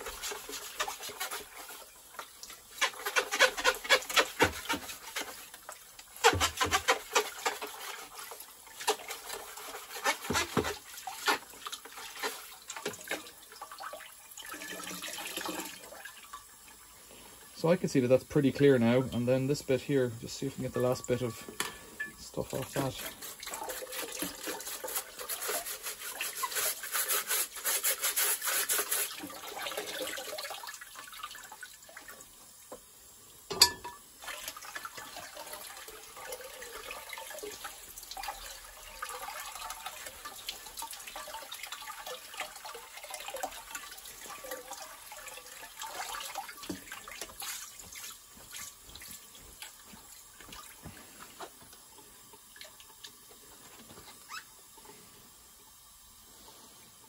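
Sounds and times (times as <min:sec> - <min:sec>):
brush scrubbing metal fins: 0:00.0 - 0:13.2, 0:22.4 - 0:29.4, 0:45.9 - 0:48.7
tap water running: 0:00.0 - 0:57.0.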